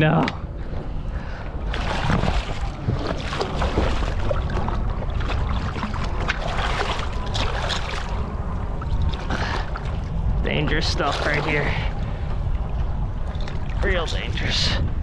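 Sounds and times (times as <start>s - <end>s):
wind rumble on microphone: 0.0s - 15.0s
fish splashing in water: 1.7s - 9.9s.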